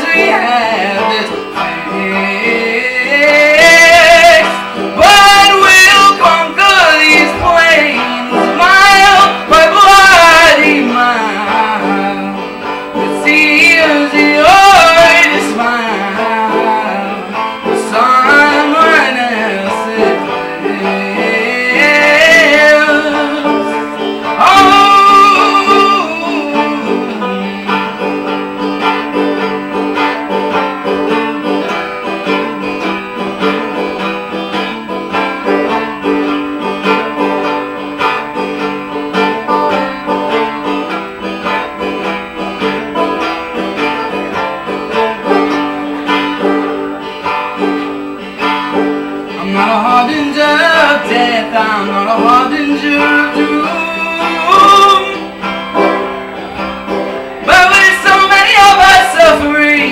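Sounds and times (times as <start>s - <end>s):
man singing sliding phrases: 0.0s - 28.1s, 49.3s - 55.6s, 57.4s - 59.9s
banjo playing: 0.0s - 59.9s.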